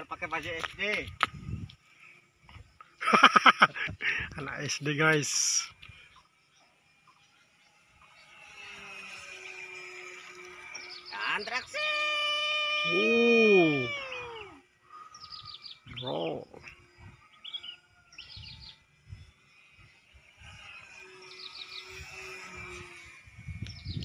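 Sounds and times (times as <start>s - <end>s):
small birds chirping trills: 0.0s - 24.0s
loud drawn-out cry: 11.8s - 14.7s.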